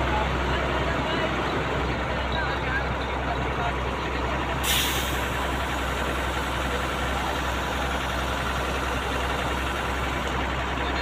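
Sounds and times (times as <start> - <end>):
diesel engine idling: 0.0 - 11.0
burst of hiss: 4.6 - 5.4.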